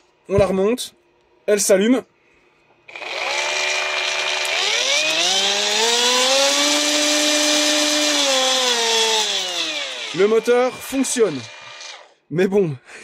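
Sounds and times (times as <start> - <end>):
electric motor running: 2.9 - 12.1.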